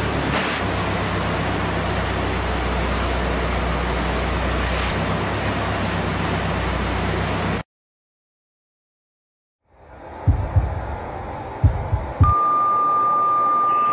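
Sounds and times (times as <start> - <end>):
low hum: 9.6 - 13.9
rush of air: 9.7 - 12.4.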